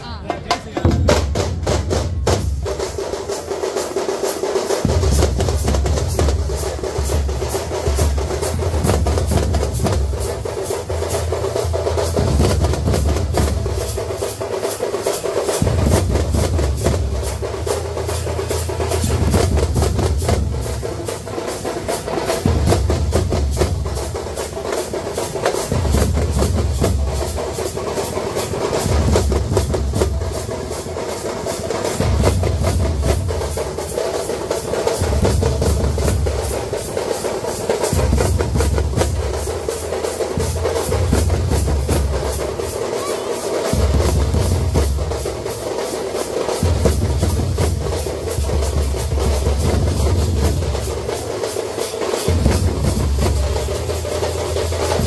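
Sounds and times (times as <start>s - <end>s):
fast rolling drum strokes: 0.0s - 55.0s
deep bass drum beat: 4.8s - 14.3s.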